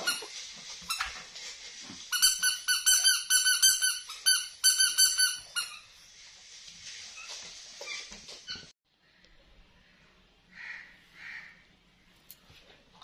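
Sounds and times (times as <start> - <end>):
toy squeaker toots: 2.1 - 5.8.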